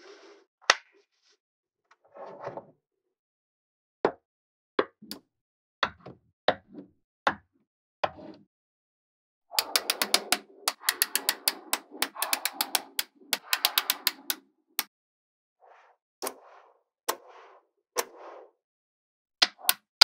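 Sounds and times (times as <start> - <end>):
magnetic balls clicking together: 9.6 - 14.4
magnetic balls rattling: 9.6 - 14.4.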